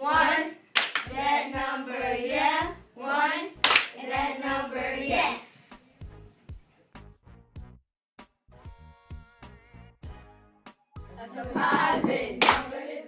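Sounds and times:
hand claps: 0.8s - 1.1s, 3.6s - 4.0s, 11.5s - 12.8s.

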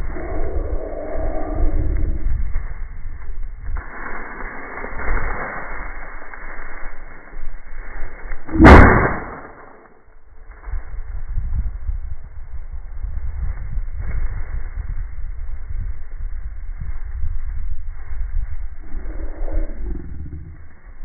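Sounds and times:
wind rumble on microphone: 0.0s - 9.4s, 10.2s - 21.0s
shotgun shot: 8.5s - 9.8s.

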